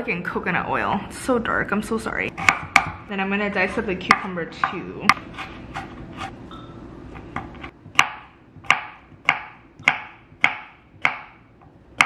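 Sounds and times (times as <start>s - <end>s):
knife chopping on wooden board: 2.4s - 3.0s, 5.1s - 6.4s, 7.3s - 11.4s.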